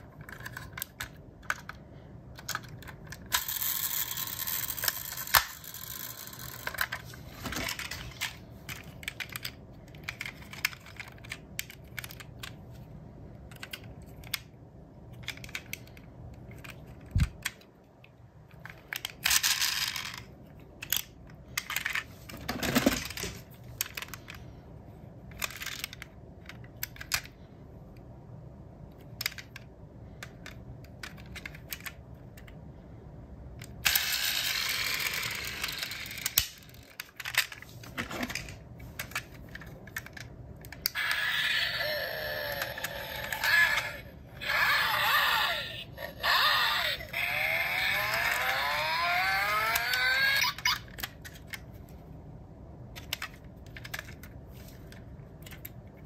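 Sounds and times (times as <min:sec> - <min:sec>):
toy car doors clicking: 0:33.6 - 0:37.6, 0:38.2 - 0:51.6.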